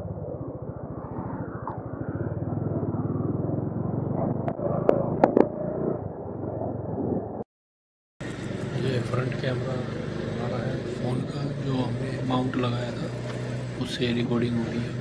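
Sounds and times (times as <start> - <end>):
motorcycle engine running: 8.2 - 15.0.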